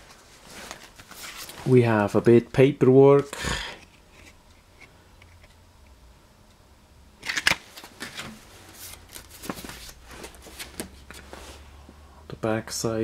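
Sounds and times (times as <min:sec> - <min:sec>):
paper card rustling and scraping: 0:00.4 - 0:01.6, 0:07.2 - 0:11.6.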